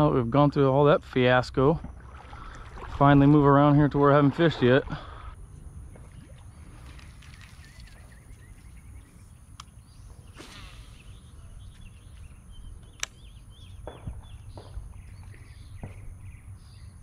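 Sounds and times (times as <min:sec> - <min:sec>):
small birds chirping: 0:05.0 - 0:17.0
sharp click: 0:12.9 - 0:13.2.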